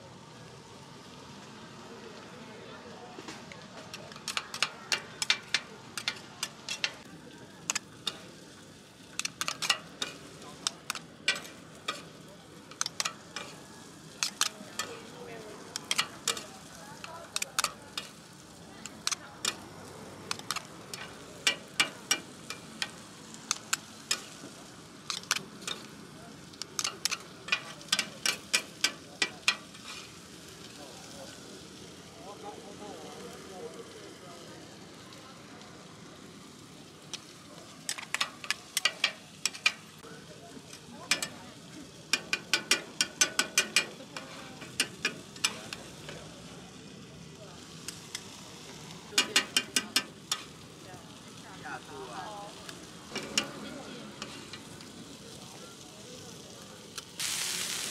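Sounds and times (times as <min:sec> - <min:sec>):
faint sizzle: 0:00.0 - 0:57.9
metal spatulas clinking on griddle: 0:03.8 - 0:08.3, 0:09.1 - 0:18.2, 0:20.3 - 0:24.4, 0:25.0 - 0:26.0, 0:26.6 - 0:30.1, 0:37.9 - 0:39.9, 0:41.0 - 0:41.4, 0:42.1 - 0:46.2, 0:49.2 - 0:50.6, 0:53.1 - 0:54.7.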